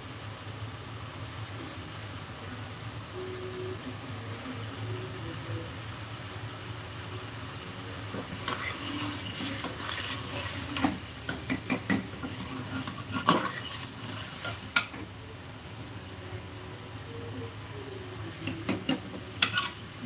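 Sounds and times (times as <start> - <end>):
food sizzling: 0.0 - 20.0
ladle scraping and clinking on pot: 8.4 - 15.0, 19.4 - 19.8.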